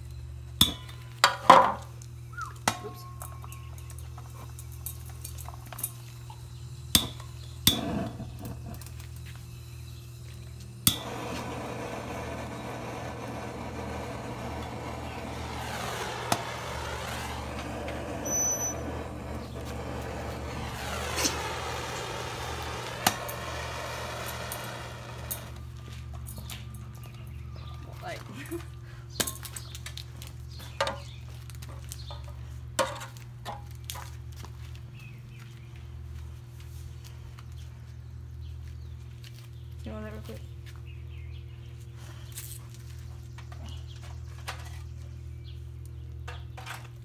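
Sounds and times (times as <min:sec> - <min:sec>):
steady hiss: 0:08.4 - 0:25.6.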